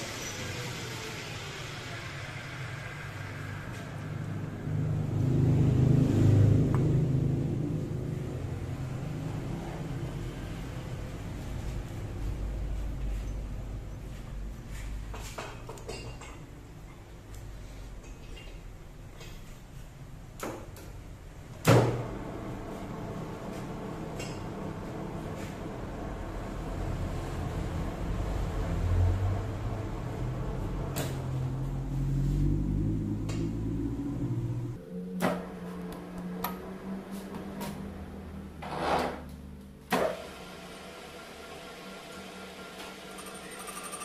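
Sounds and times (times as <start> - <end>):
metal lathe running: 41.1 - 44.0.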